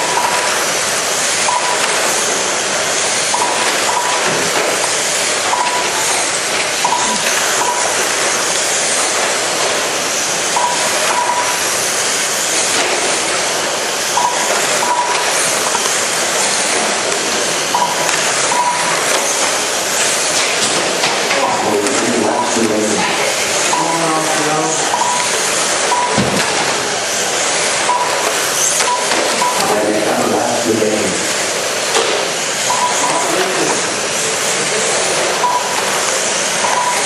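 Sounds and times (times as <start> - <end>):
rc car engines buzzing: 0.0 - 37.0
short beeps: 10.6 - 11.6, 14.2 - 15.2, 17.7 - 19.0, 23.7 - 24.1, 25.9 - 26.2, 27.8 - 28.2, 28.8 - 29.8, 32.7 - 33.3, 35.4 - 35.8, 36.6 - 37.0.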